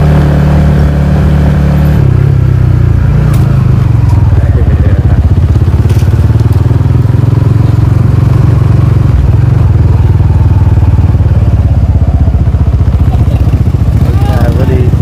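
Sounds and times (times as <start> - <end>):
small motorcycle engine running: 0.0 - 15.0.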